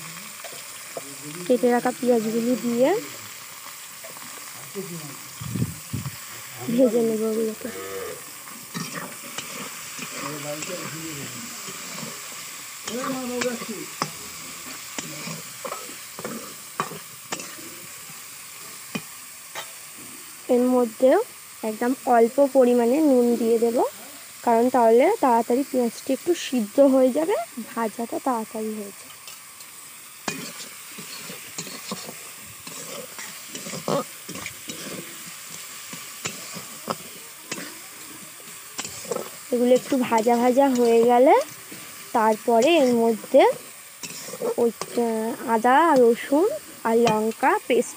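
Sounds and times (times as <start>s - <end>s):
onions sizzling in oil: 0.0s - 47.9s
spatula scraping and clinking pan: 8.7s - 10.8s, 15.0s - 17.6s, 30.2s - 37.8s, 38.8s - 45.0s, 47.0s - 47.4s.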